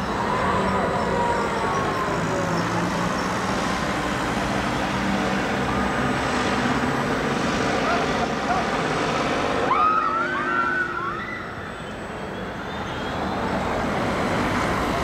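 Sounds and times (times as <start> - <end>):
road traffic: 0.0 - 15.0
funfair noise: 7.8 - 12.2.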